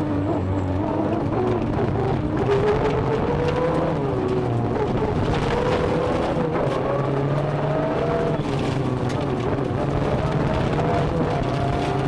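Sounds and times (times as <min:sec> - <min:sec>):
car engine running hard: 0:00.0 - 0:12.0
road and tyre noise: 0:00.0 - 0:12.0.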